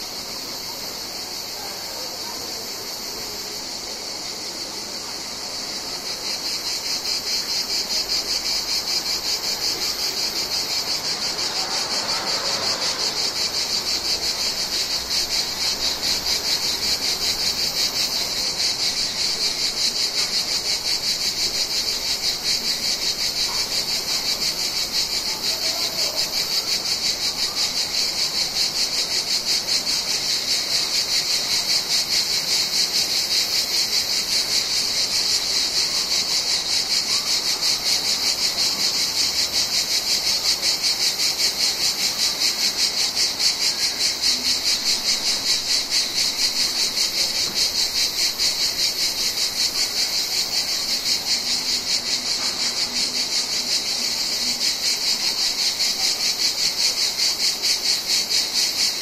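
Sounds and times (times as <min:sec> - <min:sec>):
cicadas buzzing: 0:00.0 - 0:59.0.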